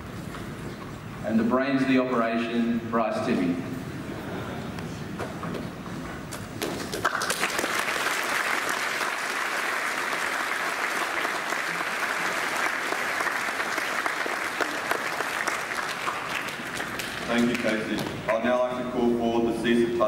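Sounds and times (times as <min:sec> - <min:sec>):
large audience applauding: 0:06.7 - 0:18.0.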